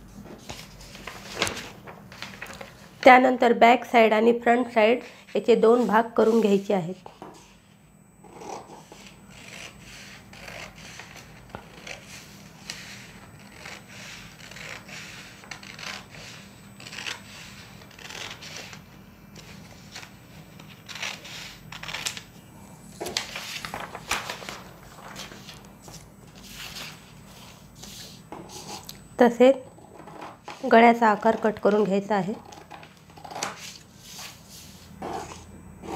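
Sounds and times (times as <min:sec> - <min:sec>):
paper rustling on table: 0:00.1 - 0:02.9, 0:23.0 - 0:28.8, 0:32.6 - 0:35.4.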